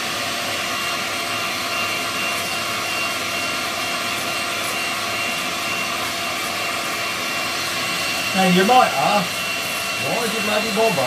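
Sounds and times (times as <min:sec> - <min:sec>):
electric whisk motor whine: 0:00.0 - 0:11.0.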